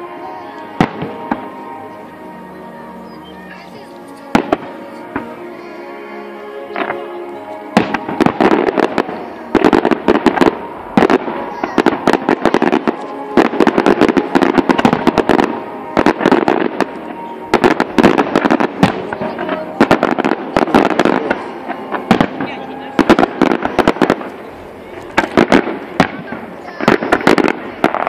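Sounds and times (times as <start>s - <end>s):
fireworks crackling bangs: 0.0s - 1.9s, 3.0s - 5.6s, 6.7s - 28.0s.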